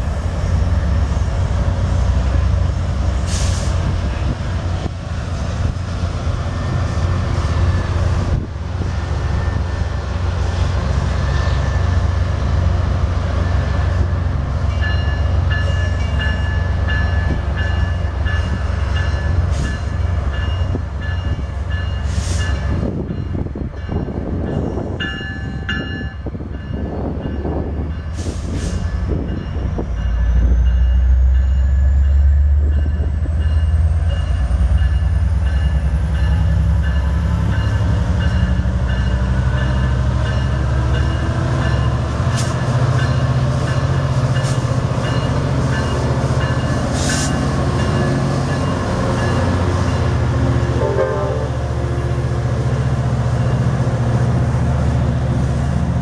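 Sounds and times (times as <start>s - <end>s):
locomotive engine rumbling: 0.0s - 56.0s
train horn: 50.6s - 52.2s.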